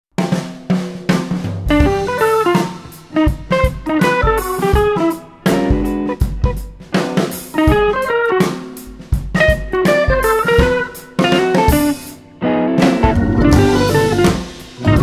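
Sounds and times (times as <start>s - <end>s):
drum kit: 0.1s - 15.0s
plucked guitar melody: 9.8s - 15.0s.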